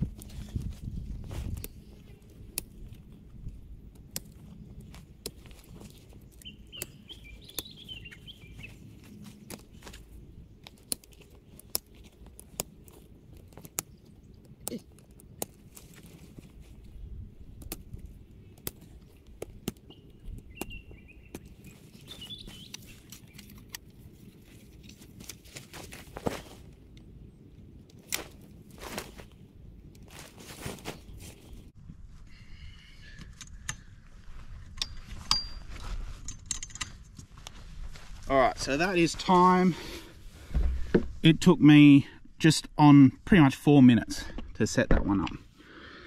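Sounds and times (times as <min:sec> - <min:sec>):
bird twittering: 0:06.4 - 0:08.8, 0:19.9 - 0:23.5.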